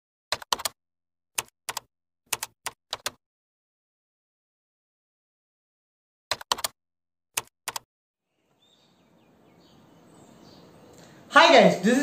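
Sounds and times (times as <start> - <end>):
sharp keystroke clicks: 1.4 - 3.2, 6.3 - 6.7, 7.4 - 7.9.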